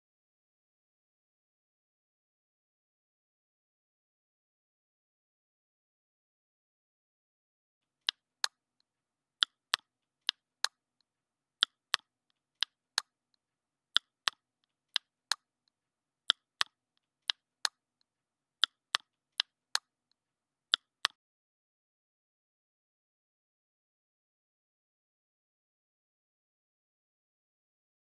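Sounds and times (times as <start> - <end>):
sharp dry clicks in pairs: 9.4 - 10.8, 16.3 - 17.8, 20.7 - 21.2.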